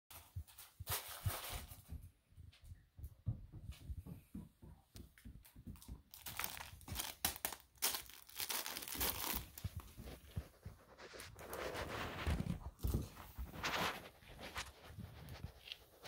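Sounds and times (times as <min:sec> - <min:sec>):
puppy rummaging crinkling toys: 0:06.1 - 0:16.0.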